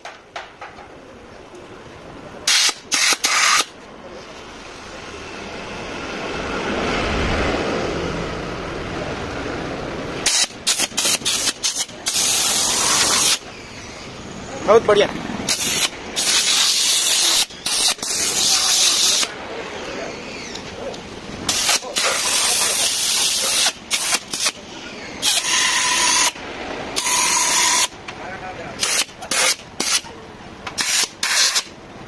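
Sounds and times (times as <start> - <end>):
compressed air blasts: 2.5 - 3.7, 10.2 - 13.5, 15.4 - 19.3, 21.4 - 24.6, 25.2 - 26.4, 27.0 - 28.0, 28.8 - 30.1, 30.7 - 31.8.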